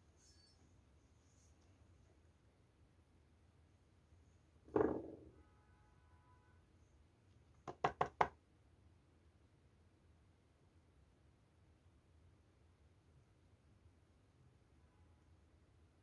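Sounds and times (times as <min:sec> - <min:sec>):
plastic tube knocking on mould: 0:04.7 - 0:05.3, 0:07.6 - 0:08.3.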